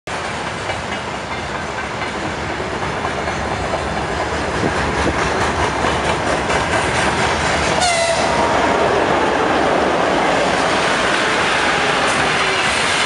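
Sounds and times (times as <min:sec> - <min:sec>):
train wheels rumbling on rail: 0:00.1 - 0:13.0
wheels clicking over rail joints: 0:00.4 - 0:08.1.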